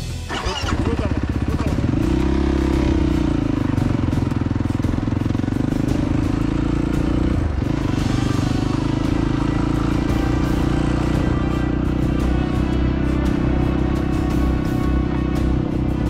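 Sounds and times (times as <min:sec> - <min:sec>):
quad engine revving: 0:00.3 - 0:16.0.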